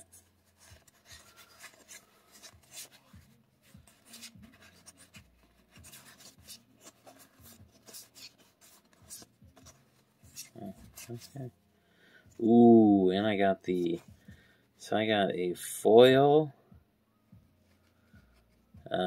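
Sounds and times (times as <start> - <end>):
cards rustling and flicking: 0.0 - 11.5.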